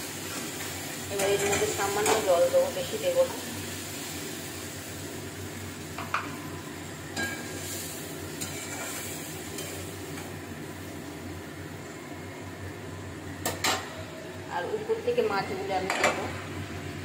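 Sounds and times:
paste sizzling in a pan: 0:00.0 - 0:12.3.

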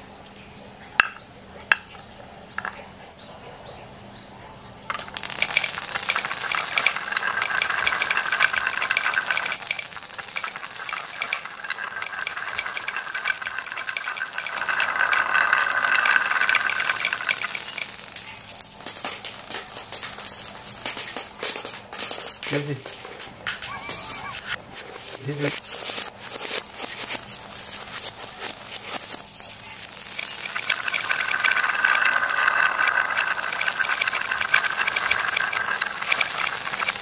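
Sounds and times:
marbles rolling on tiles: 0:01.0 - 0:02.9, 0:04.9 - 0:37.0
marbles clattering down wooden slope: 0:04.9 - 0:24.6, 0:25.2 - 0:37.0.

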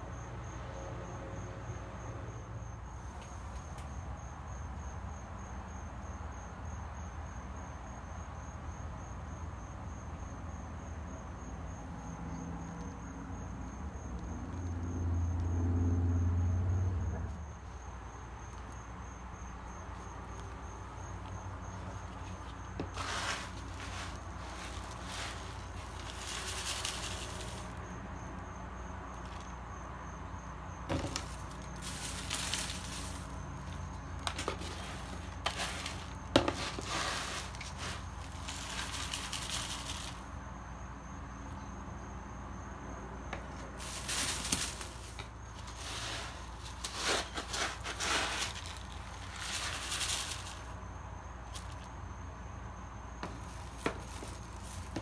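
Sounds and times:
cat litter rattling through scoop: 0:22.9 - 0:27.8, 0:31.0 - 0:33.4, 0:34.2 - 0:40.2, 0:43.8 - 0:50.7.

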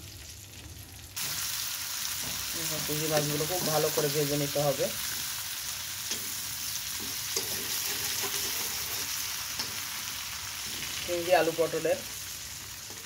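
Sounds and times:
prawns sizzling in oil: 0:00.0 - 0:13.0
metal spatula taps and scrapes: 0:07.0 - 0:09.8.

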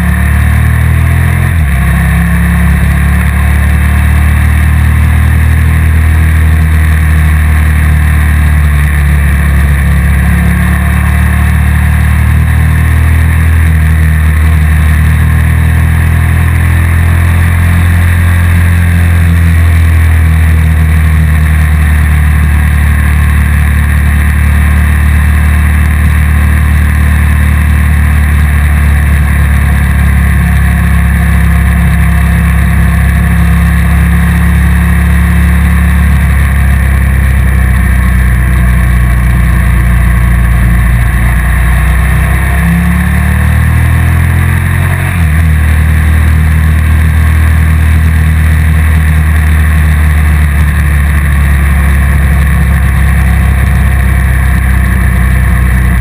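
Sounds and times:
motorcycle engine rumbling: 0:00.0 - 0:56.0.

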